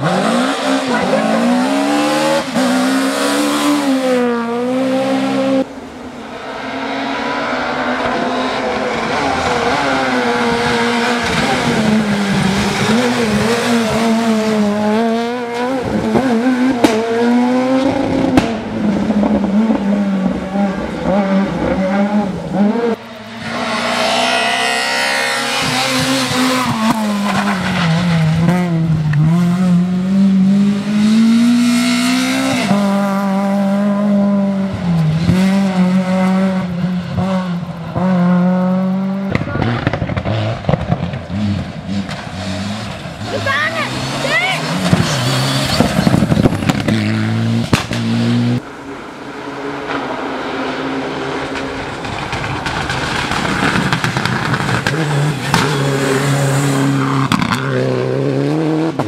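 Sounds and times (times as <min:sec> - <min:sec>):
rally car engines revving: 0:00.0 - 0:59.0
sharp cracks: 0:47.6 - 0:48.1, 0:51.4 - 0:55.8.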